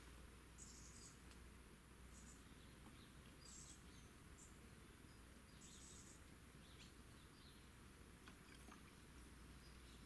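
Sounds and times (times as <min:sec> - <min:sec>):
faint ticks: 0:01.2 - 0:01.5.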